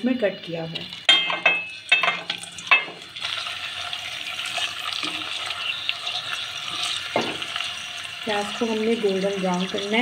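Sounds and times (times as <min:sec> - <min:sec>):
onions sizzling in hot oil: 0:00.0 - 0:10.0
spoon clinking against pot: 0:01.1 - 0:03.0.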